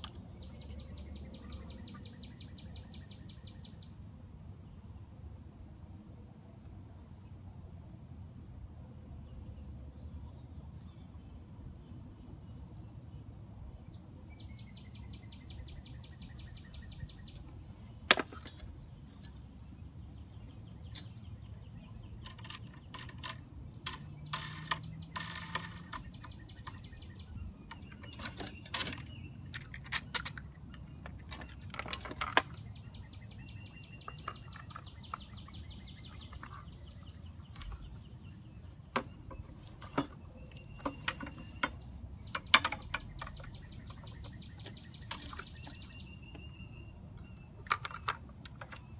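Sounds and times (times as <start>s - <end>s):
birds chirping: 0.0s - 4.0s, 13.8s - 48.9s
metal and plastic parts clattering: 18.1s - 19.5s, 22.2s - 26.8s, 27.7s - 32.6s, 38.9s - 44.0s, 44.6s - 46.0s, 47.2s - 48.9s.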